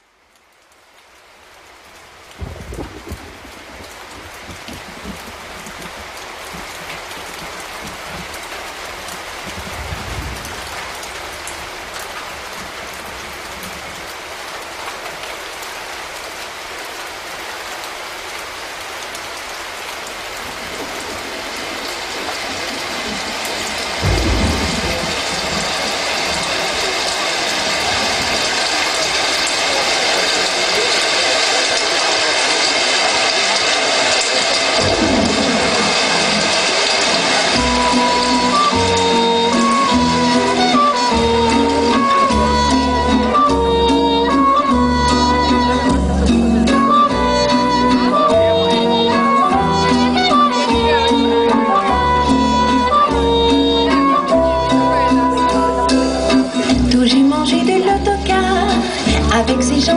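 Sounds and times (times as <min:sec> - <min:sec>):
steady rain hiss: 0:00.0 - 0:59.9
thunder clap: 0:02.3 - 0:13.9, 0:20.4 - 0:29.8, 0:34.2 - 0:40.2
thunder rolls: 0:02.4 - 0:08.3, 0:09.1 - 0:11.8, 0:20.4 - 0:29.4, 0:34.7 - 0:38.1.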